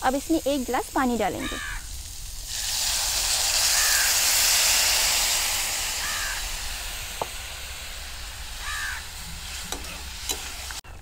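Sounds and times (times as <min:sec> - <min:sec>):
hot oil hissing and sizzling: 0:00.0 - 0:10.8
crow cawing: 0:01.4 - 0:01.9, 0:03.7 - 0:04.2, 0:06.0 - 0:06.4, 0:08.6 - 0:09.1.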